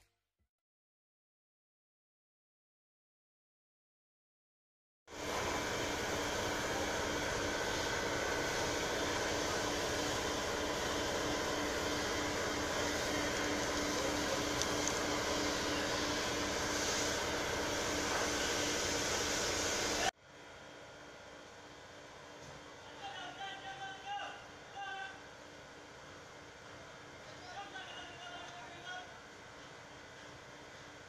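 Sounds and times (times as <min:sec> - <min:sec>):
machine whirring hiss: 0:05.1 - 0:20.1
faint pulsing hum: 0:05.2 - 0:20.7.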